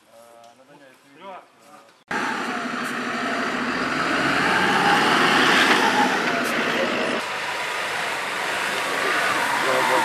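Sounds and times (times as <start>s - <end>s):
truck engine running: 2.1s - 10.0s.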